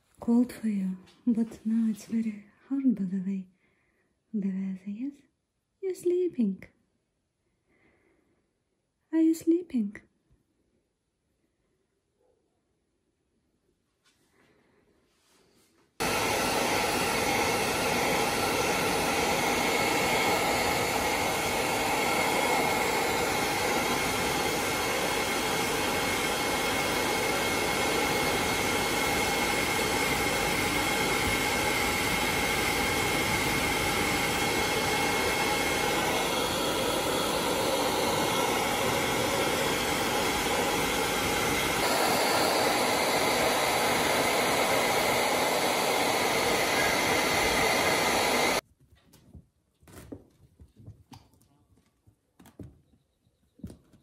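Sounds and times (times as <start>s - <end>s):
hair dryer blowing with whine: 16.0s - 48.6s.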